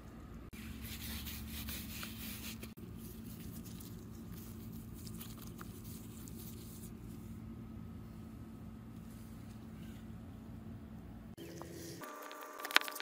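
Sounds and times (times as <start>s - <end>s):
steady low hum: 0.0s - 13.0s
hand rubbing flour on plastic mat: 0.6s - 7.4s.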